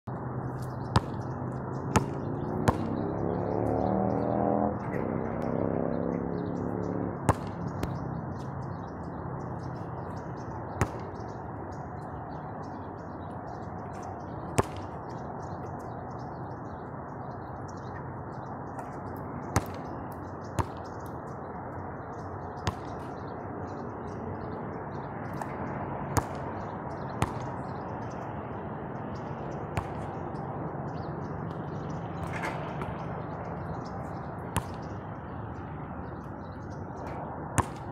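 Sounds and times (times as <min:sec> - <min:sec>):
basketball hitting hoop and bouncing: 0:02.0 - 0:02.9.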